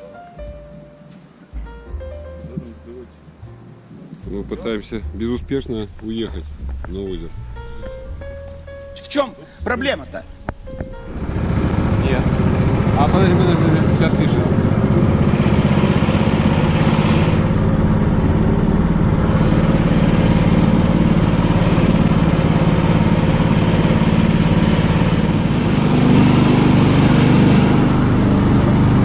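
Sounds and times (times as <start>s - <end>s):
vehicle engine running under load: 10.4s - 29.0s.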